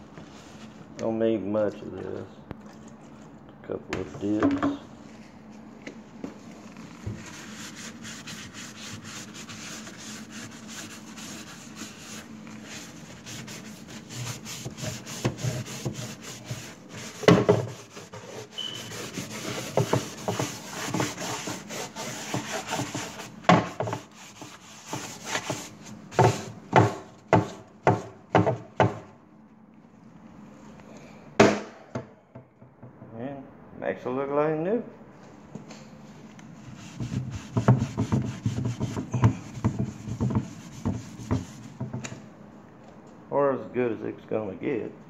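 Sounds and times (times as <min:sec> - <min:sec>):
paper towel scrubbing wood: 0:06.6 - 0:29.0, 0:36.6 - 0:42.0.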